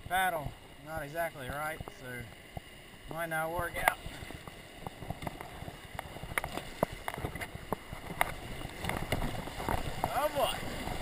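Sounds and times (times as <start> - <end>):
water splashing and rushing: 0.0 - 11.0
sharp ticks and knocks: 3.8 - 10.2.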